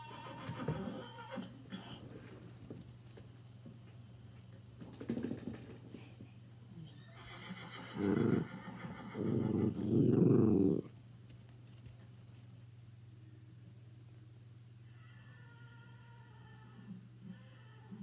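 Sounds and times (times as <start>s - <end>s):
horse neighing through speakers: 0.0s - 1.6s, 6.9s - 9.8s.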